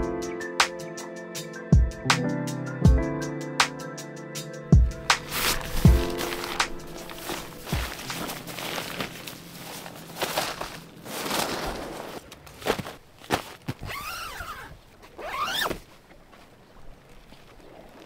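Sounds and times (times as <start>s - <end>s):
fabric rustling: 5.2s - 16.0s
zipper: 13.8s - 15.8s.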